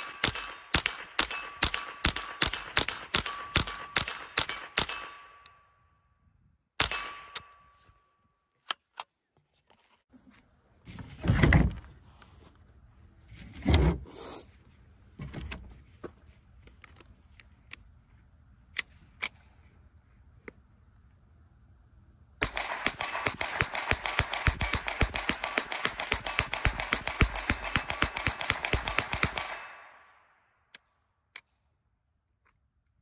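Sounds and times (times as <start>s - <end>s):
gunshots: 0.0s - 5.3s, 6.8s - 7.4s, 22.4s - 30.2s
steel target ringing: 0.0s - 5.9s, 6.8s - 8.2s.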